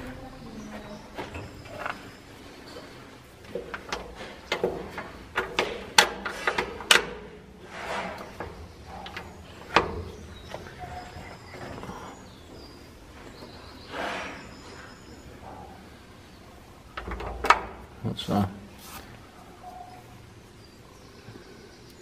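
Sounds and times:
metal lever clicks and clunks: 0:03.5 - 0:11.2, 0:16.9 - 0:18.0
soft rustle: 0:18.8 - 0:19.8.

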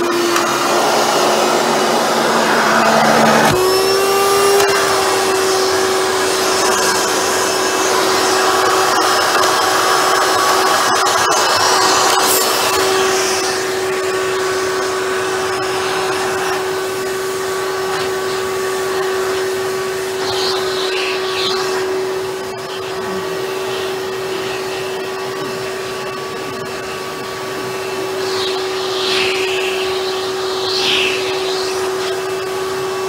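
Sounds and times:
vacuum cleaner running: 0:00.0 - 0:33.0.

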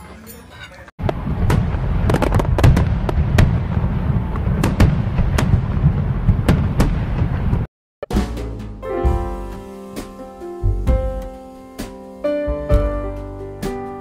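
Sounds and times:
fireworks rumbling bursts: 0:01.0 - 0:07.7
sharp firework cracks: 0:01.0 - 0:07.7.

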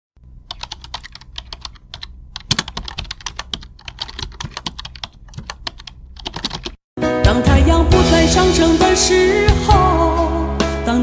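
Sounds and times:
rapid irregular clicking and tapping: 0:00.5 - 0:06.8.

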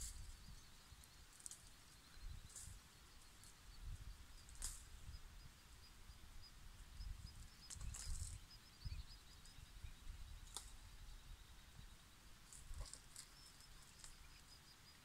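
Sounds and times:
leaves and twigs crackling: 0:00.0 - 0:03.7, 0:04.4 - 0:05.0, 0:07.7 - 0:08.4, 0:12.4 - 0:14.5
faint high chirping: 0:00.0 - 0:15.0.

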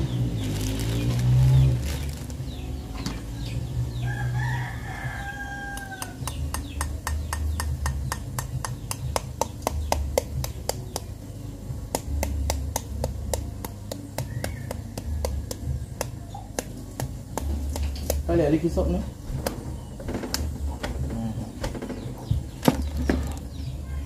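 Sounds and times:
rooster crowing: 0:03.9 - 0:06.3.

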